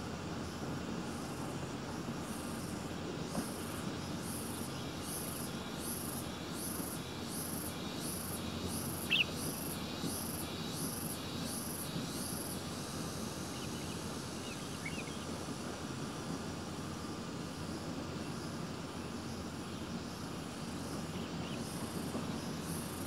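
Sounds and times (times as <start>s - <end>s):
insect chirping: 0.1s - 23.0s
bird chirp: 8.8s - 9.6s.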